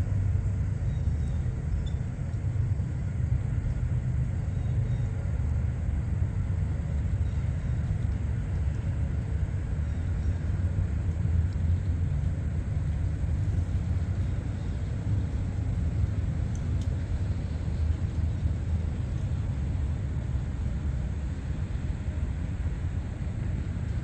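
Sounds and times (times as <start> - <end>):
steady low rumble: 0.0 - 24.0
faint high ticks: 1.8 - 2.5, 16.4 - 17.0.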